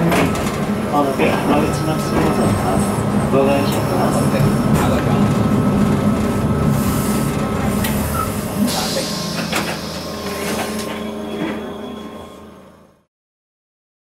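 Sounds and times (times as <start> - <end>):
streetcar motor and wheel rumble: 0.0 - 13.1.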